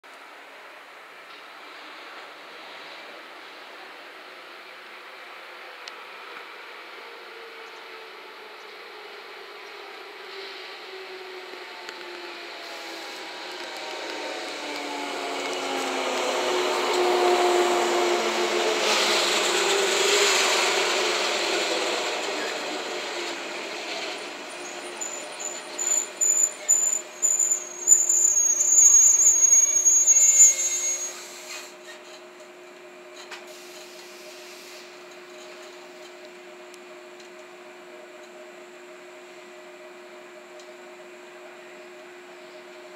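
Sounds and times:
standing train low hum: 0:00.1 - 0:42.9
train motor and wheel noise: 0:00.1 - 0:42.9
high brake squeal: 0:24.5 - 0:32.1.

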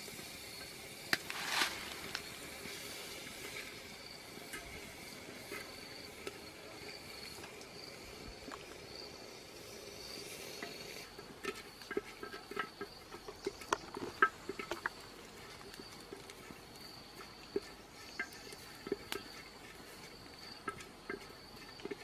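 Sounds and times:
insects trilling: 0:00.0 - 0:22.0
stick clicking in clay pot: 0:10.6 - 0:22.0.

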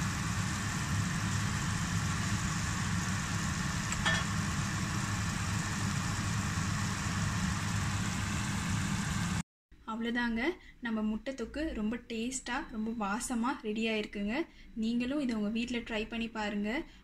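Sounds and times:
low mechanical hum: 0:00.0 - 0:09.4.

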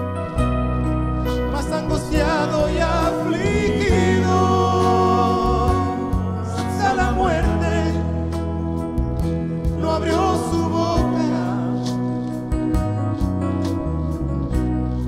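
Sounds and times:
instrumental accompaniment: 0:00.0 - 0:15.0
women singing worship song: 0:02.3 - 0:08.1.

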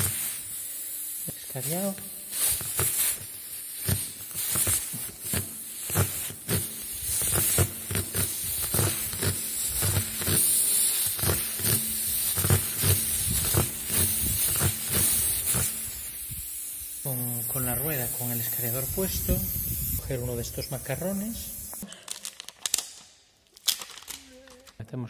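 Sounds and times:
reamer rubbing against tyre rubber: 0:00.0 - 0:00.5, 0:02.3 - 0:16.2
air hissing from tyre: 0:00.0 - 0:21.8.

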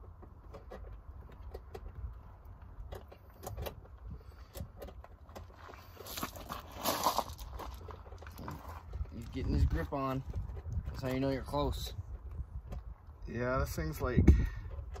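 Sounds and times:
rustling scrape: 0:05.4 - 0:09.8.

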